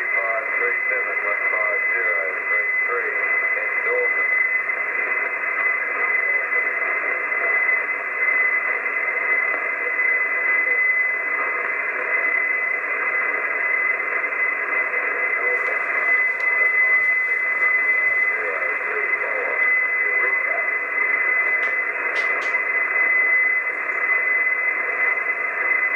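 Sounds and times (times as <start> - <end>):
radio static hiss: 0.0 - 25.9
steady high tone: 14.7 - 25.9.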